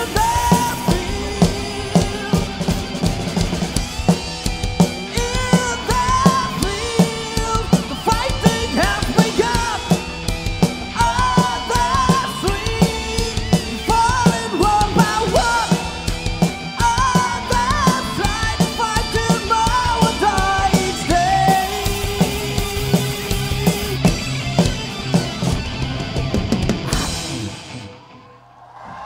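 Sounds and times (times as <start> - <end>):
man singing: 0.0 - 3.0, 5.0 - 10.2, 10.8 - 23.1
drum kit: 0.0 - 28.0
bass guitar: 0.0 - 28.2
electric guitar: 0.0 - 28.4.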